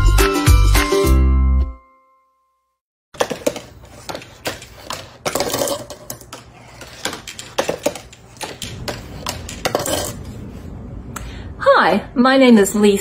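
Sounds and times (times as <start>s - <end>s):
marble clattering down cardboard chutes: 3.2s - 8.1s.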